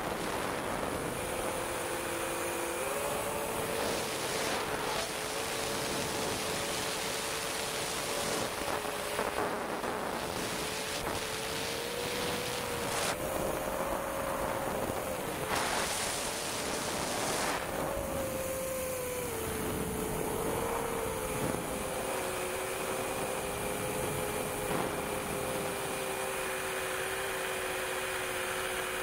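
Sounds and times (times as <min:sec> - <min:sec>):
wind noise: 0:00.0 - 0:27.1
drone motors humming: 0:00.0 - 0:29.0.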